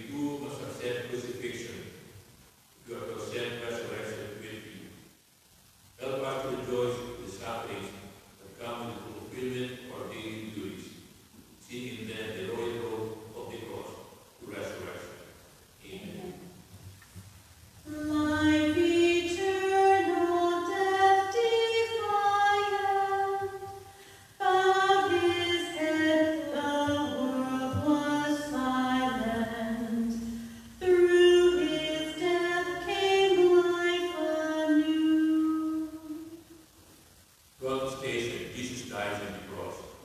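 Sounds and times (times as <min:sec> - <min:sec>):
voices singing a hymn: 0:17.9 - 0:34.8.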